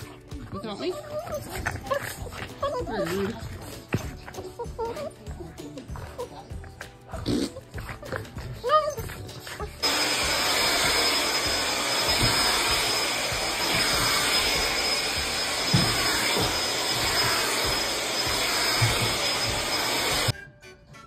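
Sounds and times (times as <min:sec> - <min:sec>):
vacuum cleaner running: 0:09.8 - 0:20.3.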